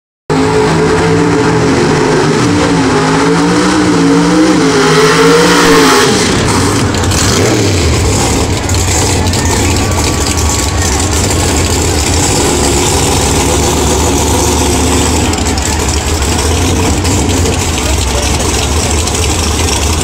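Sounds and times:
racing car engines revving: 0.3 - 20.0
low engine rumble: 6.2 - 20.0.

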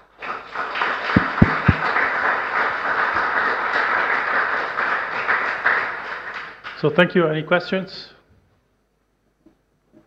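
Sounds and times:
audience applauding: 0.0 - 6.9
dull low thumps: 1.2 - 1.9.

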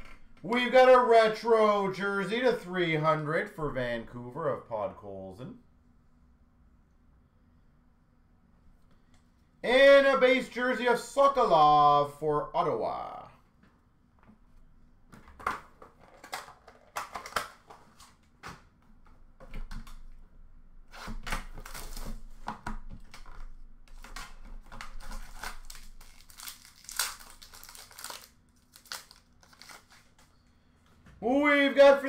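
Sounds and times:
wrapping crinkling and tearing: 16.0 - 18.2, 20.9 - 30.3.

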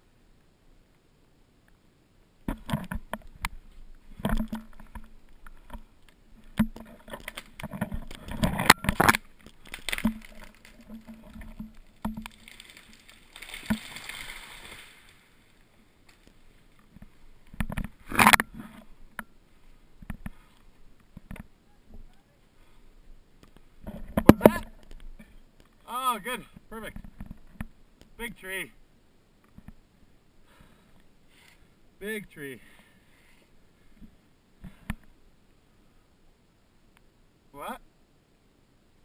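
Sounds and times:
wood creaking and snapping: 4.2 - 14.4
loud wood crack: 4.2 - 15.2
branches rushing swish: 11.8 - 15.4.

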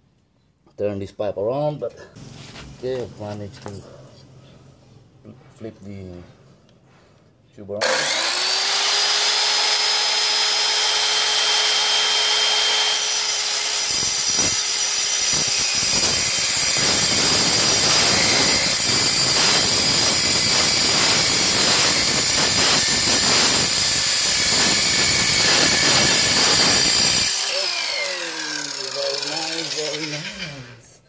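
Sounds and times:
saw grinding through metal pipe: 7.8 - 30.9
circular saw whining: 7.8 - 31.0.

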